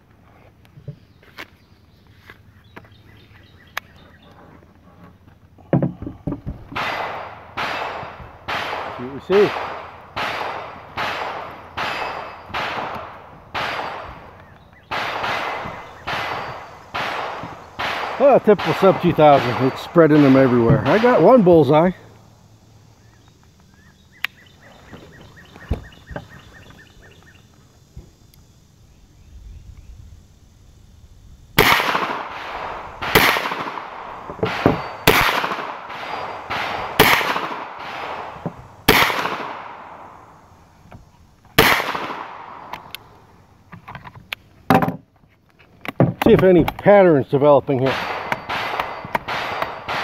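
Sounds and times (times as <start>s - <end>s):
faint outdoor background noise: 0.0s - 50.0s
bird chirping: 0.7s - 5.2s, 13.8s - 31.4s, 34.0s - 37.4s, 47.6s - 50.0s
dull thumps: 5.6s - 6.8s
rifle knocking on wooden table: 44.7s - 45.0s.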